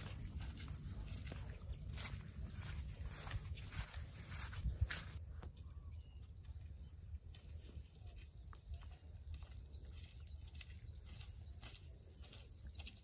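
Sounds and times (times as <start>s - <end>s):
low steady rumble: 0.0s - 5.8s
small birds chirping: 0.0s - 13.0s.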